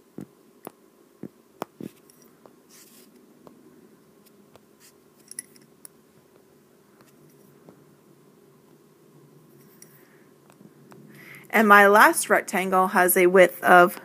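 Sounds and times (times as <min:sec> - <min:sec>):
stylus scratchy strokes: 0:01.8 - 0:03.2, 0:04.2 - 0:05.0.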